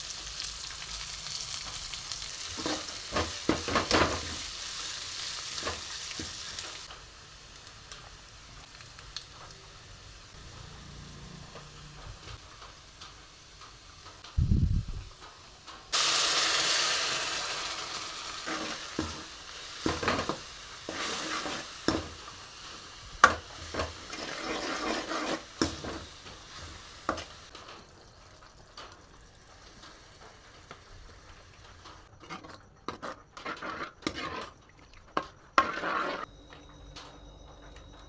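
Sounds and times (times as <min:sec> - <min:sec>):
water sizzling in hot oil: 0:00.0 - 0:32.4, 0:33.0 - 0:36.3
ladle stirring and scraping: 0:18.4 - 0:22.2, 0:23.2 - 0:27.3, 0:32.1 - 0:36.3.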